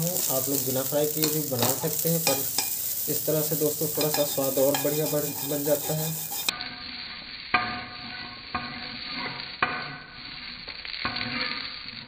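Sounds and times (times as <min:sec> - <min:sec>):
rice sizzling in frying pan: 0:00.0 - 0:12.0
spatula scraping through grains: 0:00.0 - 0:12.0
spatula knocking on pan: 0:04.0 - 0:06.5.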